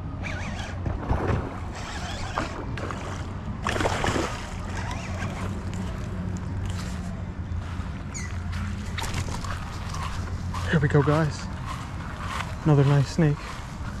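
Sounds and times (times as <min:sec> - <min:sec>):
fish thrashing and splashing: 0:00.9 - 0:06.0, 0:08.8 - 0:10.6
fishing reel cranking: 0:01.7 - 0:02.6.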